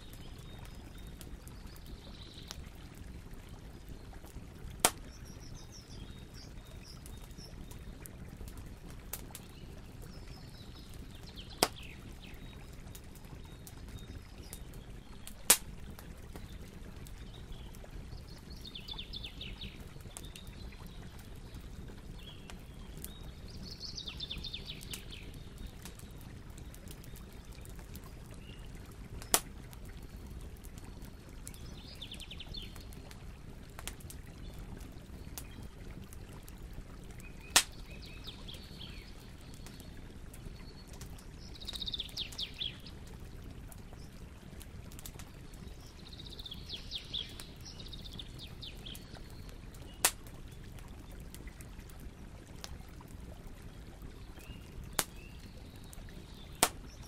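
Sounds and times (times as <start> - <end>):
bonfire burning rumble: 0.0 - 57.0
logs popping in fire: 0.0 - 57.0.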